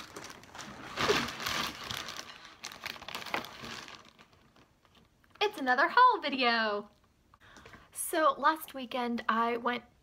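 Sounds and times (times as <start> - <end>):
plastic bag rustling: 0.0 - 5.2.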